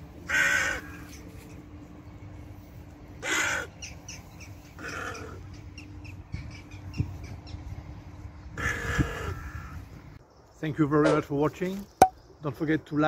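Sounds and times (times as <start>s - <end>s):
crow cawing: 0.3s - 1.1s, 3.2s - 3.8s, 4.8s - 5.4s, 8.6s - 9.8s.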